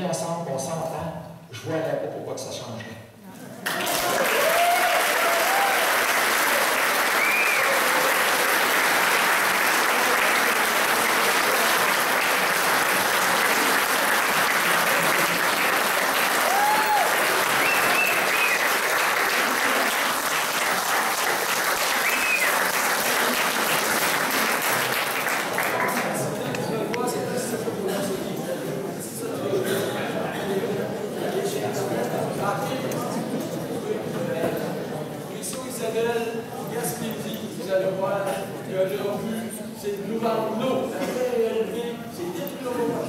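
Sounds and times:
audience applauding: 3.6 - 26.4.

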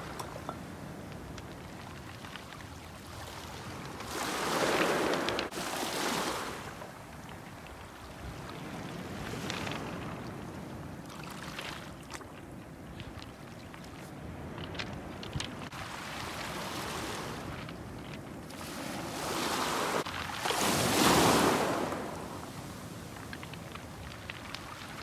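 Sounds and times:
waves washing onto pebble beach: 0.0 - 7.0, 13.0 - 25.0.

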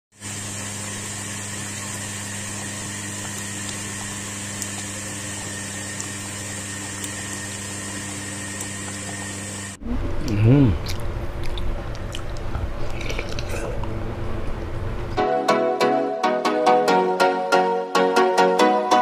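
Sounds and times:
steady hum: 0.2 - 15.3.

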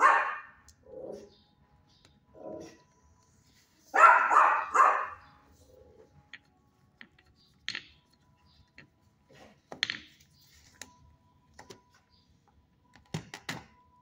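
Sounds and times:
faint background music: 0.0 - 14.0.

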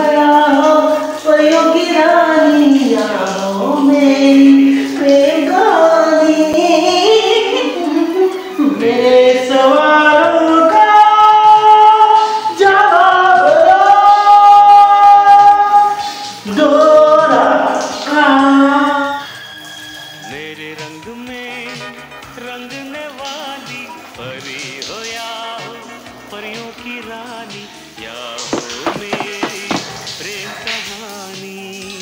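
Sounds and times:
man singing unaccompanied: 20.2 - 32.0.

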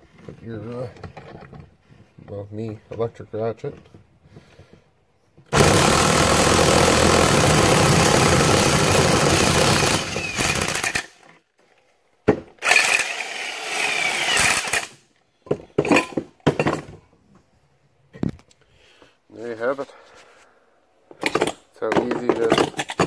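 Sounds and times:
electric ratchet running: 5.5 - 11.1, 12.6 - 14.9
metal clanks: 21.1 - 23.0.

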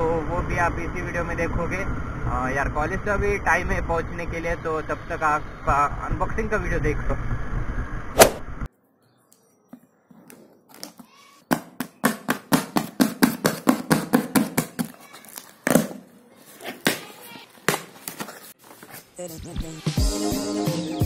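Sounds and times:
cardboard scraping and rustling: 16.4 - 19.2.

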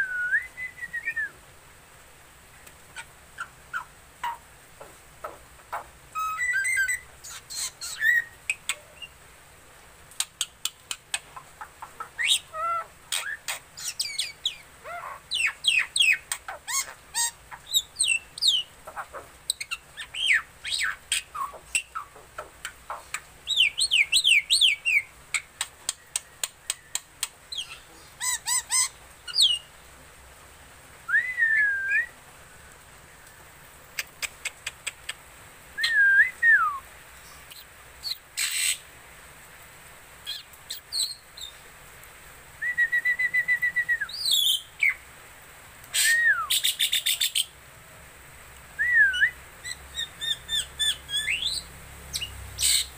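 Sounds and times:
bird singing with clicks and whistles: 5.2 - 9.1, 13.1 - 14.6, 15.3 - 18.7, 19.5 - 29.6, 35.8 - 36.8, 42.6 - 45.0, 48.8 - 52.9.

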